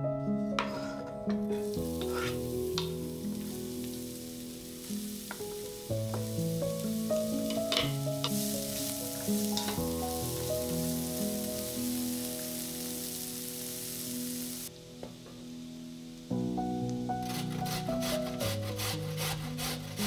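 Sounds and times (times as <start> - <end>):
background music: 0.0 - 20.0
food sizzling in hot oil: 1.5 - 14.8, 15.6 - 20.0
utensil clicking in pan: 2.0 - 3.0.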